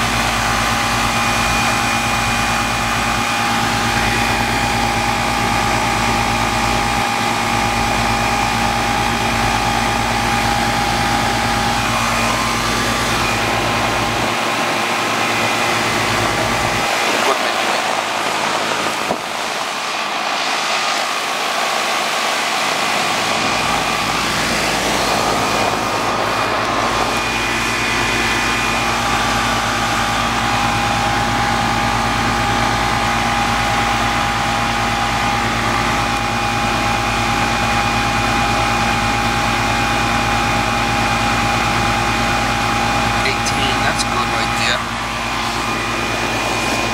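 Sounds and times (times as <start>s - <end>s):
air conditioner unit running: 0.0s - 46.9s
higher steady tone: 9.2s - 17.0s.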